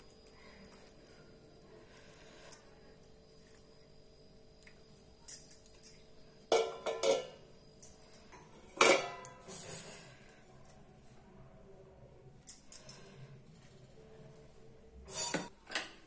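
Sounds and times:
metal plate clattering against bowl: 0:06.5 - 0:07.4, 0:08.8 - 0:09.4.

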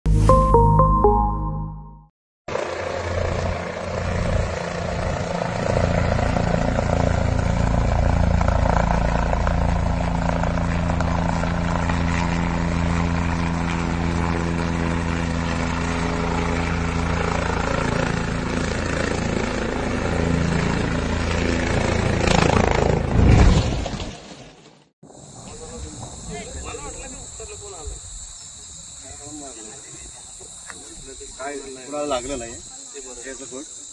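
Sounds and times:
helicopter rotor and engine: 0:02.5 - 0:23.2.

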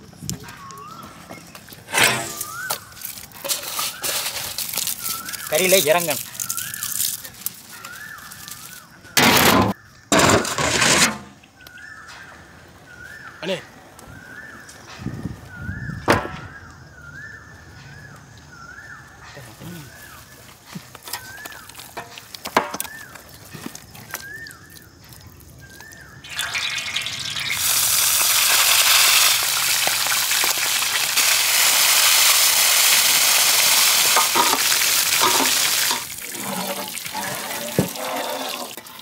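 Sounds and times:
meat deep-frying in oil: 0:02.3 - 0:08.9, 0:20.9 - 0:39.0
squishing meat by hand: 0:04.5 - 0:08.9.

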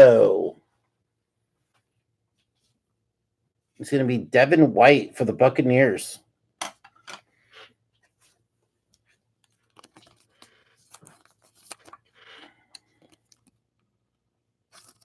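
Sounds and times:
plastic card sleeves rustling: 0:09.0 - 0:13.6, 0:14.7 - 0:15.0.

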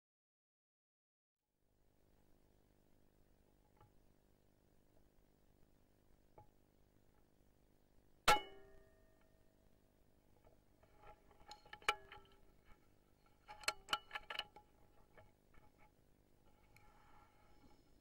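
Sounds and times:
small metallic clicks: 0:10.8 - 0:17.0.

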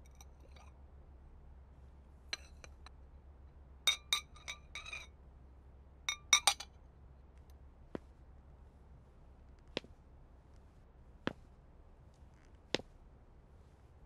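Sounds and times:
porcelain jar clinking: 0:03.9 - 0:05.1, 0:06.1 - 0:06.6.

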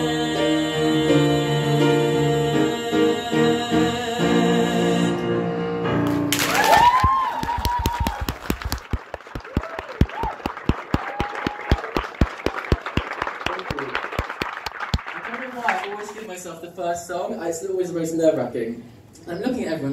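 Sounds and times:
audience clapping: 0:06.0 - 0:16.4
audience cheering and whooping: 0:06.3 - 0:13.2.

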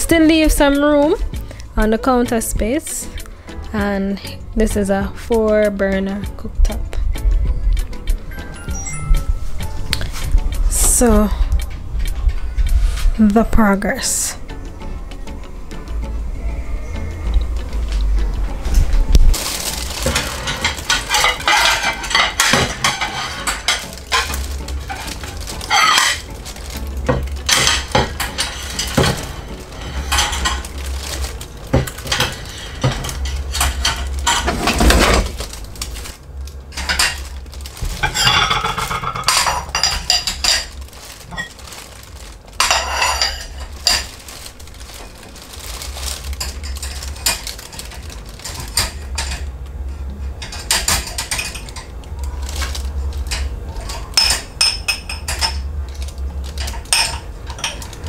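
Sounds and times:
dishes clinking in wire rack: 0:20.0 - 0:35.6, 0:36.7 - 0:37.4, 0:38.0 - 0:41.8, 0:42.6 - 0:44.3, 0:46.4 - 0:49.5, 0:50.2 - 0:58.0.

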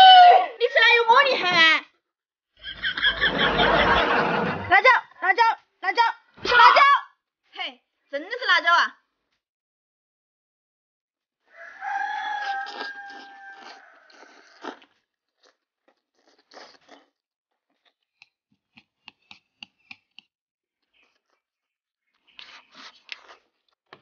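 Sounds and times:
crunchy bite: 0:12.2 - 0:20.1
close-miked eating: 0:12.3 - 0:23.8.

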